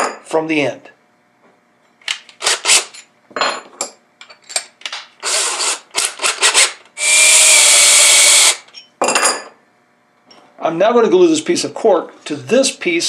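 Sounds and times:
cordless drill running: 0:05.2 - 0:08.6.

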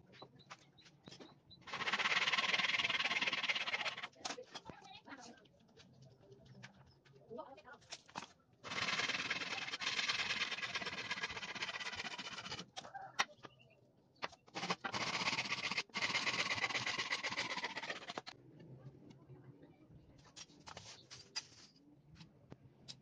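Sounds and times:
hand saw cutting wood: 0:01.7 - 0:04.2, 0:08.7 - 0:12.7, 0:14.6 - 0:18.3.

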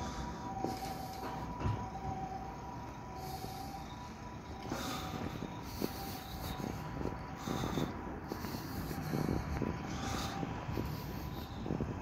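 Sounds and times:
street ambience: 0:00.0 - 0:12.0
wind noise: 0:04.7 - 0:12.0.

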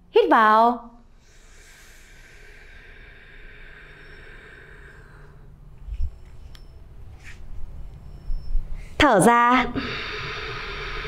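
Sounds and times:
person inhaling deeply: 0:01.1 - 0:05.7, 0:09.7 - 0:11.0.

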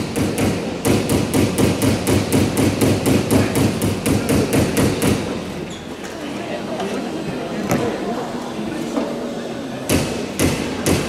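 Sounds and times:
hammer striking metal: 0:00.0 - 0:05.4.

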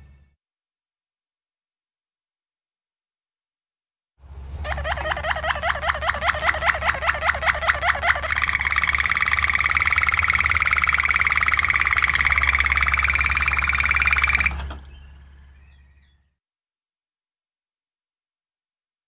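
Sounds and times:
steady low hum: 0:04.2 - 0:16.1
canary singing trills: 0:04.6 - 0:16.3.

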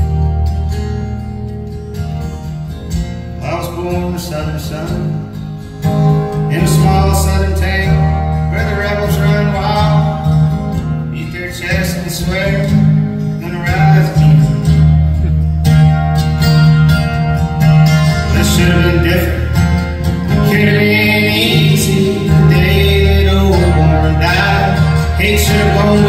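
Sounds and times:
acoustic guitars strummed: 0:00.0 - 0:26.0
person singing: 0:18.0 - 0:26.0.

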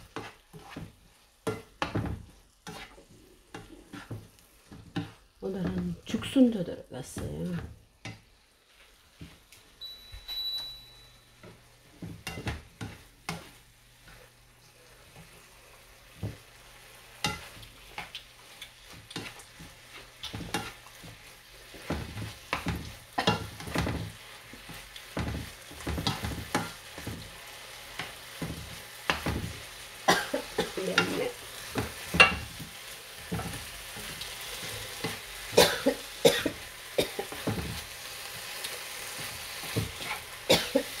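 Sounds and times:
food sizzling in frying pan: 0:00.0 - 0:41.0
short high beep: 0:09.8 - 0:11.3.

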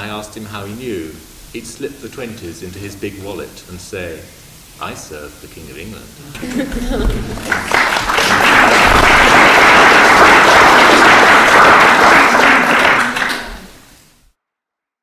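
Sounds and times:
audience applauding: 0:06.4 - 0:14.0.

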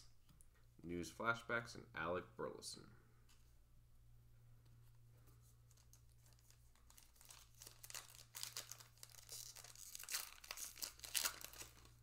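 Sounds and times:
card pack wrapper crinkling and tearing: 0:05.7 - 0:12.0.

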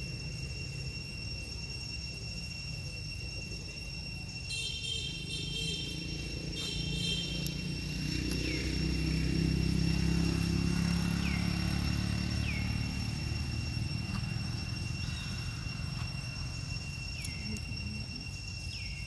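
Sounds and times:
high-pitched whine: 0:00.0 - 0:19.0
passing vehicle engine rumble: 0:05.8 - 0:18.5.

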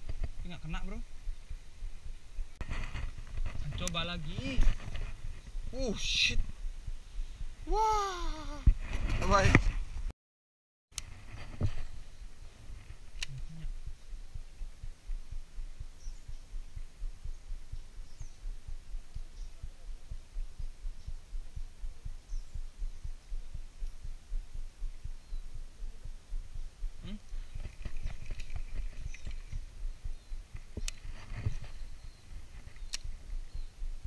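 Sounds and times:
faint bird chirps: 0:13.3 - 0:27.8, 0:28.6 - 0:34.0
sharp click: 0:30.8 - 0:31.0, 0:32.8 - 0:33.1.

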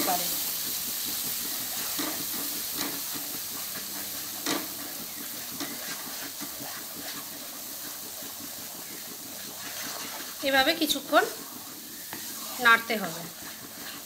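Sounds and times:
food sizzling in hot oil: 0:00.0 - 0:14.0.

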